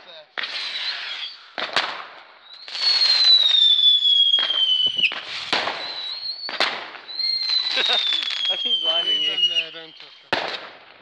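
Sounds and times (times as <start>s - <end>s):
whistling firework: 0.4s - 10.7s
firework bangs: 0.4s - 11.0s
firework crackling: 0.4s - 11.0s.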